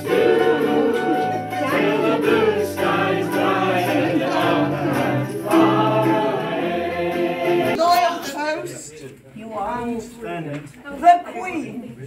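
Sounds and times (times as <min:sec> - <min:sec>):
guitar accompaniment: 0:00.0 - 0:07.8
group of voices singing: 0:00.0 - 0:08.3.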